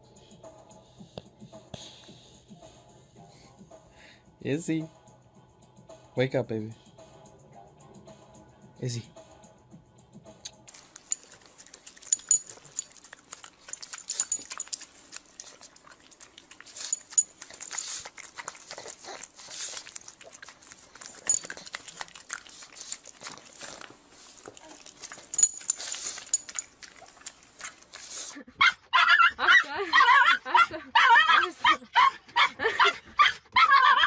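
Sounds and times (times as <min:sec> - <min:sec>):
dog snuffling and licking: 0:10.5 - 0:28.4.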